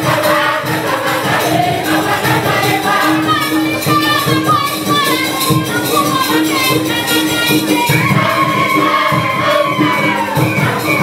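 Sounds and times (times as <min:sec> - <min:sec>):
group singing: 0:00.0 - 0:11.0
percussion beat: 0:00.0 - 0:11.0.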